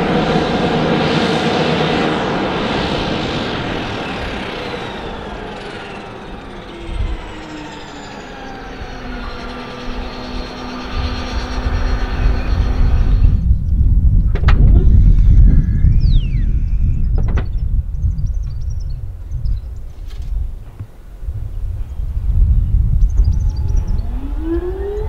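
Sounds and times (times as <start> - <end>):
turboprop engine winding down: 0.0 - 19.8, 21.3 - 25.0
low thud: 14.3 - 15.3, 17.0 - 17.7.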